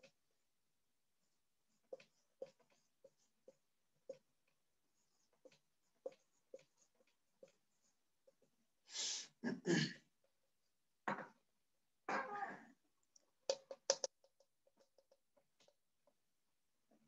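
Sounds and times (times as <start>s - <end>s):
marker scraping on board: 1.7s - 8.4s
marker ticking on whiteboard: 1.9s - 8.5s, 13.4s - 16.2s.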